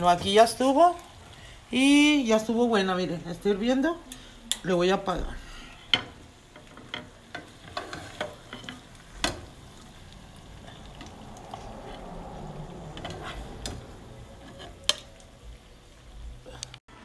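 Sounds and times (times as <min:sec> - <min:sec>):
soft sizzle of sauce: 0:00.0 - 0:17.0
metal spoon scraping a pot: 0:05.8 - 0:09.4, 0:12.9 - 0:15.2.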